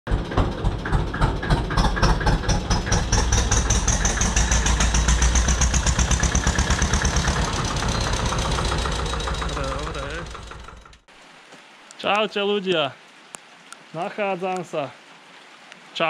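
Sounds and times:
tractor diesel engine running: 0.1s - 11.1s.

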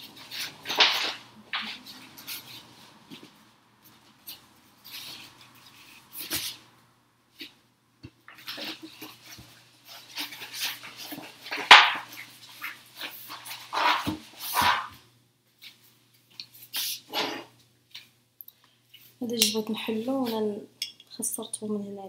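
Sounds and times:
vinyl paper rustling and crinkling: 0.0s - 6.6s, 8.3s - 15.0s.

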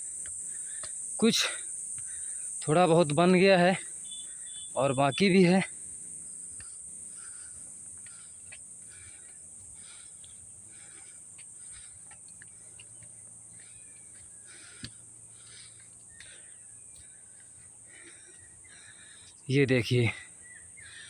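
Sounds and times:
crickets droning: 0.0s - 21.0s
soft footsteps on concrete steps: 7.6s - 17.6s.

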